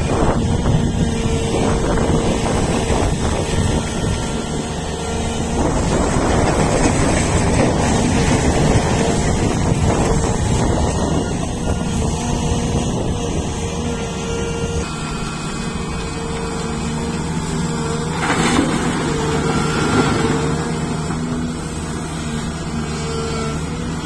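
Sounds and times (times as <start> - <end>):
wind buffeting microphone: 0.0 - 14.9
excavator diesel engine working: 0.0 - 24.0
steady whine: 0.0 - 24.0.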